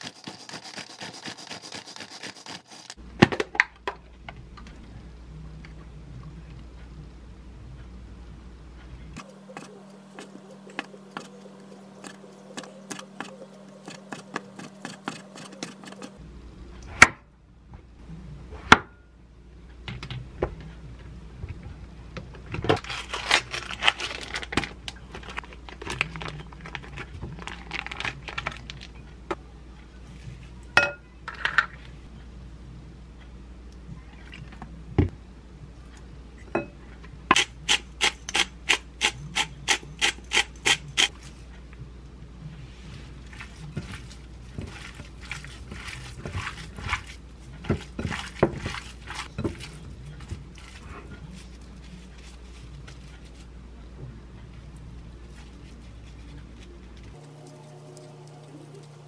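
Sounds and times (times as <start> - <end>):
plastic film crinkling: 22.8 - 28.9.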